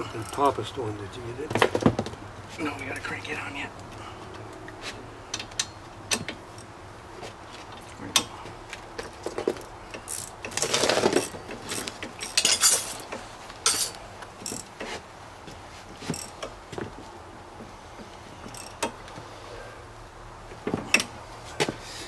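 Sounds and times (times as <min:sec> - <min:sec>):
metal tools clinking: 0:09.6 - 0:14.7
ratchet wrench clicking: 0:09.9 - 0:10.6, 0:18.5 - 0:19.0.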